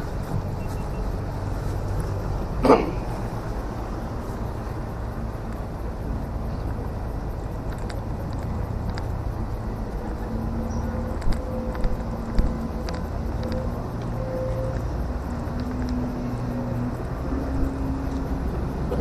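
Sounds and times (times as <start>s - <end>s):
low roadside rumble: 0.0s - 19.0s
faint ticks: 3.8s - 19.0s.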